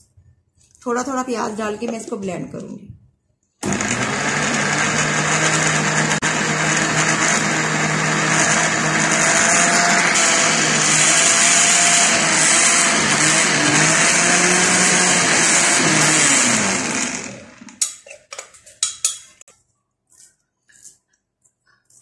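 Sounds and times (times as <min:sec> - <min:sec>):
electric blender grinding: 0:03.6 - 0:17.8.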